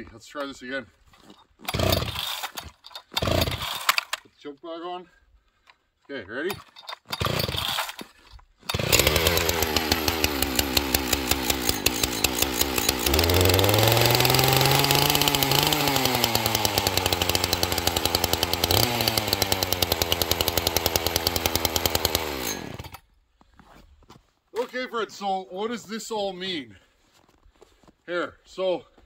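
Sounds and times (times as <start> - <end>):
chainsaw starting and revving: 1.6 - 4.2, 6.5 - 23.0.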